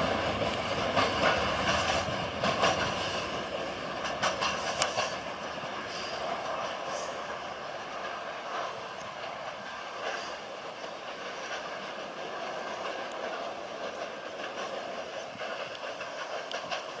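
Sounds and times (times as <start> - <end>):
train wheels rolling on track: 0.0 - 17.0
light clicks: 4.1 - 5.2, 15.5 - 17.0.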